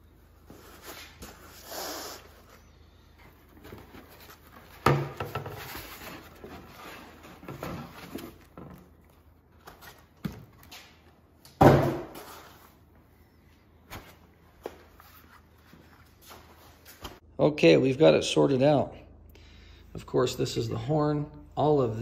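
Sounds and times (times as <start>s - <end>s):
foam and wiring rustling: 3.2s - 11.1s.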